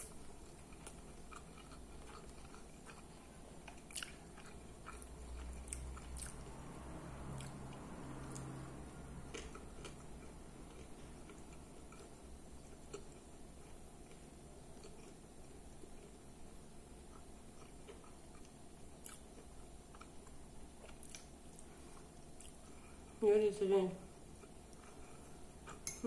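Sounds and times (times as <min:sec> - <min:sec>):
chewing with mouth closed: 0:00.0 - 0:06.5, 0:07.3 - 0:08.6, 0:17.1 - 0:22.8.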